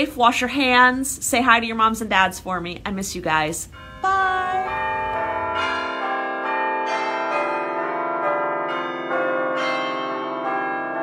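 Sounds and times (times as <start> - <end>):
chiming bell tune: 3.7 - 11.0.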